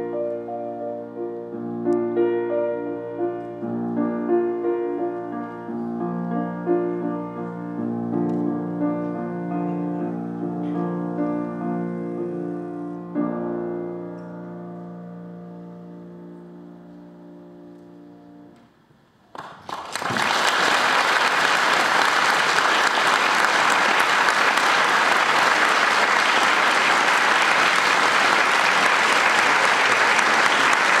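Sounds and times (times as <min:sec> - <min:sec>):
audience applause: 0:19.3 - 0:31.0.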